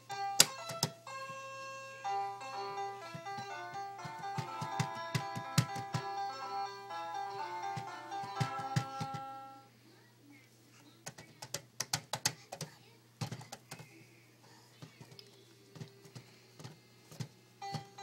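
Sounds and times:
toy playing electronic tune: 0.0s - 9.7s, 17.6s - 18.0s
toy buttons clicking: 0.2s - 1.5s, 2.6s - 9.6s, 17.6s - 18.0s.

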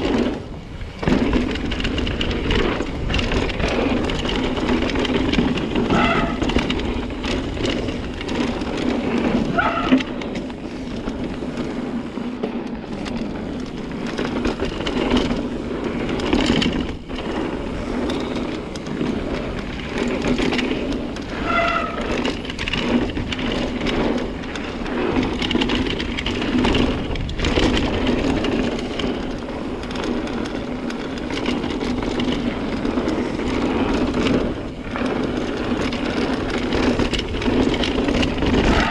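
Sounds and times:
bike rattling over bumps: 0.0s - 38.9s
bike tyres rolling over dirt: 0.0s - 38.9s
wind on microphone: 13.6s - 38.9s.

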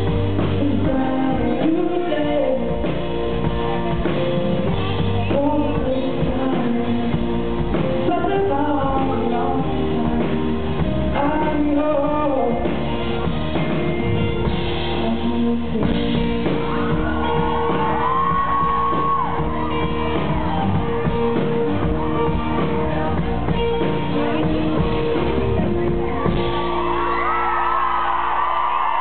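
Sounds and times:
live band with guitars: 0.0s - 29.0s
audience cheering and whooping: 16.2s - 29.0s.

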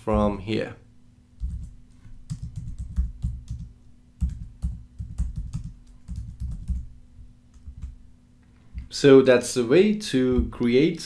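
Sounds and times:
typing on computer keyboard: 1.4s - 6.9s.

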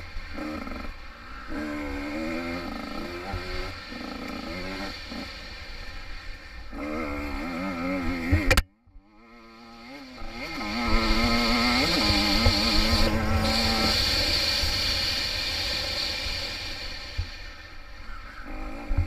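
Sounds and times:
dirt bike engine revving: 0.0s - 19.0s
sharp click: 8.3s - 8.7s.

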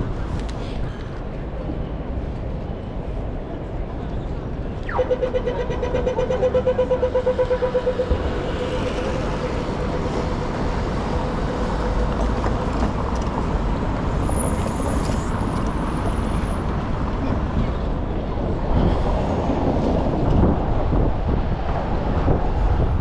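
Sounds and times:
city traffic noise: 0.0s - 23.0s
falling pew tone: 4.8s - 6.8s.

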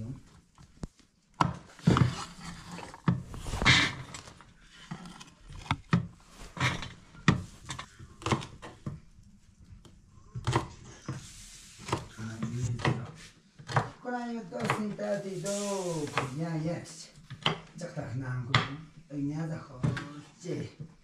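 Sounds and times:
knife chopping on wooden board: 8.2s - 8.9s, 10.4s - 11.2s, 11.8s - 14.0s.

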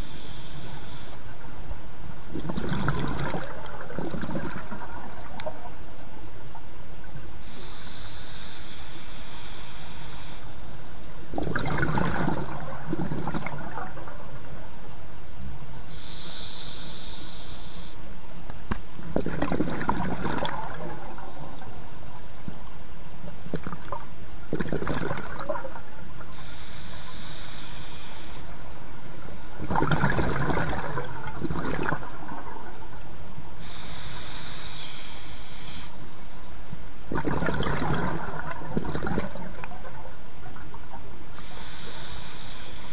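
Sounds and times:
hissing inhale through regulator: 0.0s - 1.2s, 7.4s - 10.5s, 15.9s - 18.0s, 26.2s - 28.5s, 33.6s - 36.0s, 41.3s - 42.9s
exhaled bubbles rushing underwater: 2.3s - 6.0s, 11.3s - 14.7s, 19.0s - 22.5s, 23.4s - 26.3s, 29.5s - 33.1s, 37.1s - 41.0s.

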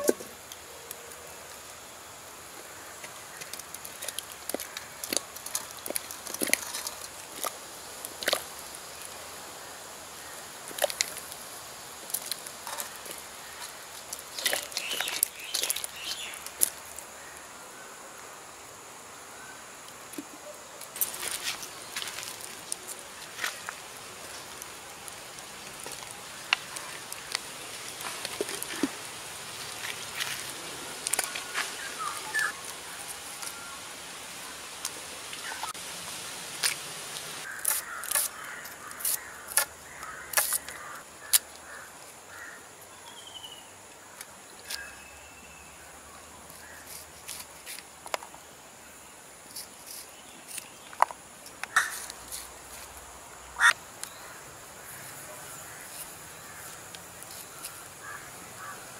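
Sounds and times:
steady high hiss: 0.0s - 58.9s
birds calling: 12.6s - 17.4s, 26.2s - 33.8s, 53.5s - 58.9s.

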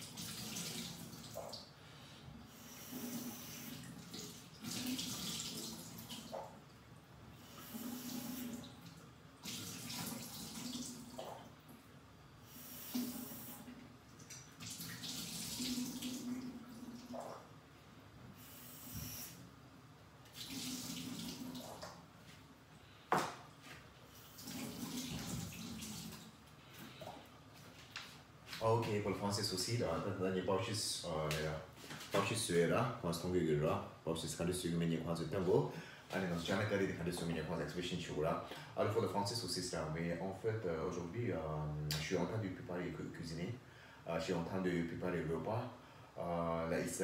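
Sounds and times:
tap water splashing in sink: 24.4s - 26.3s.

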